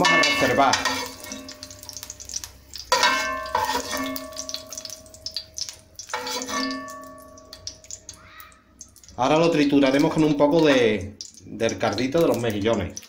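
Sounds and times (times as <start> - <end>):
utensil knocking on metal pot: 0.0 - 2.0
oil sizzling: 0.0 - 13.0.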